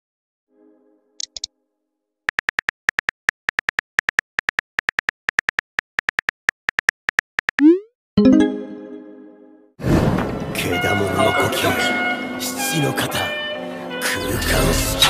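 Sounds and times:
sharp clicks: 1.2 - 1.5, 2.3 - 7.7.

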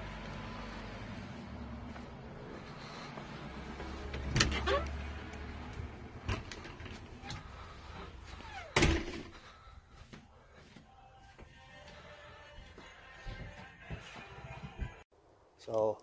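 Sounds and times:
door squeak: 4.2 - 5.1, 8.4 - 9.3
door thudding shut: 8.7 - 9.3.

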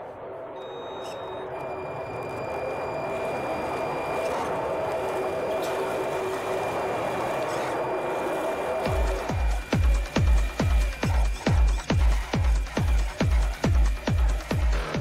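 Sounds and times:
toy car electric motor whirring: 2.2 - 14.9
electronic dance music: 6.0 - 15.0.

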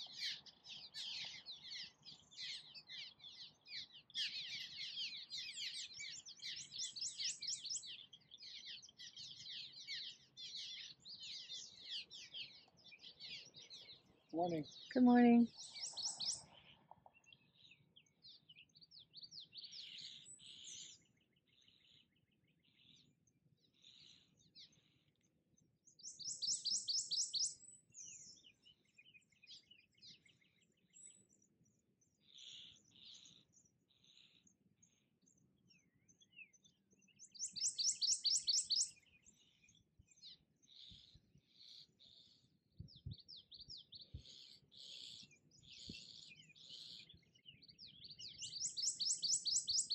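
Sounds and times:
swallows chattering: 0.0 - 49.9
warbler singing high notes: 14.4 - 16.4.

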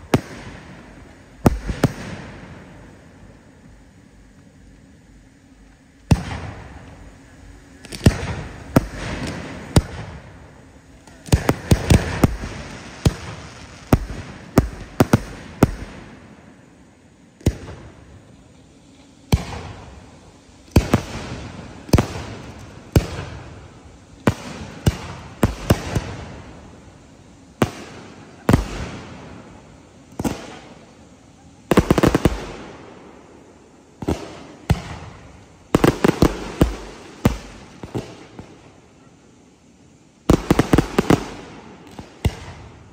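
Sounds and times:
fireworks bursting: 0.0 - 42.9.

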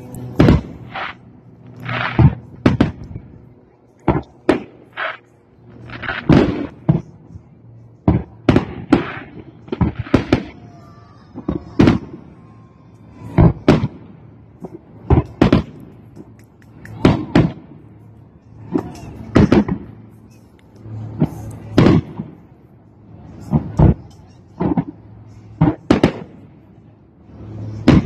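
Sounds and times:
firework shells bursting: 0.1 - 3.2.

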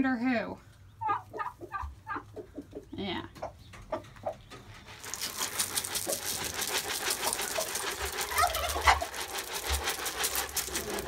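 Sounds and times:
feed pouring into feeder: 4.9 - 11.0.

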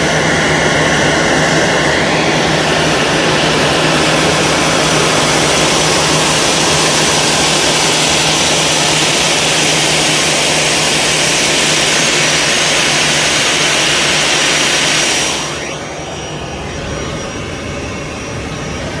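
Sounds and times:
jet engine rush: 0.2 - 19.0
faint high whistle: 14.5 - 19.0.

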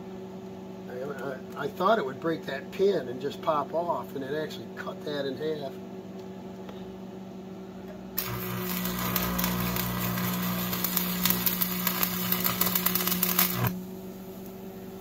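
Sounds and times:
steady low hum: 0.0 - 15.0
welding arc crackling sizzle: 8.2 - 15.0.

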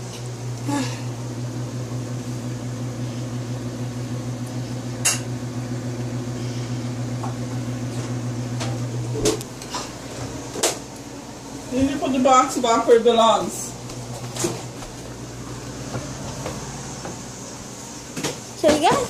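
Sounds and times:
microwave oven humming: 0.0 - 19.0.

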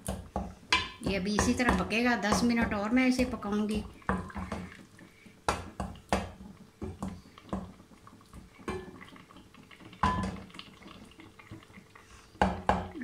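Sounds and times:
spoon knocking metal pot: 0.0 - 4.7, 10.0 - 10.4, 12.4 - 13.0
wooden spoon mashing fruit: 0.0 - 11.8.

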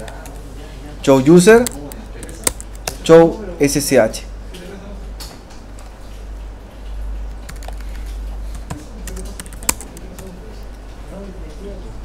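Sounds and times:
computer keyboard keystrokes: 1.5 - 3.0, 5.8 - 10.3.

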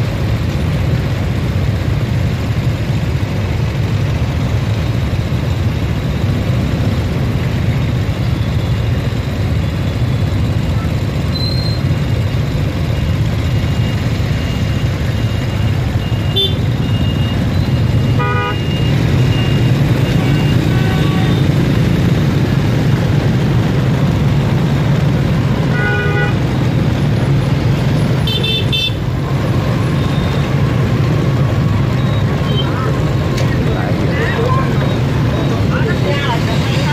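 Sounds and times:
motorbike engines rumbling: 0.0 - 36.9
horn beeps: 10.7 - 21.7, 29.8 - 30.7, 31.6 - 36.9.

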